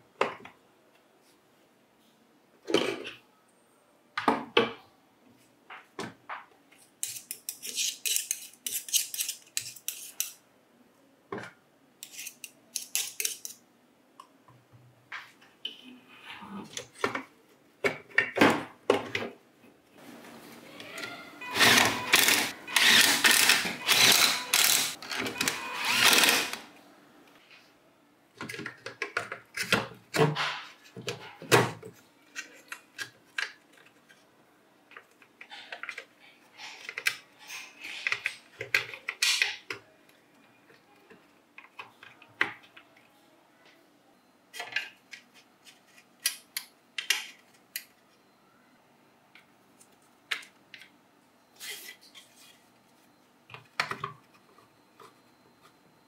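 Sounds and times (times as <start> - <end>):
harsh scraping of tool parts: 7.0 - 10.4, 12.0 - 13.6, 21.4 - 26.7.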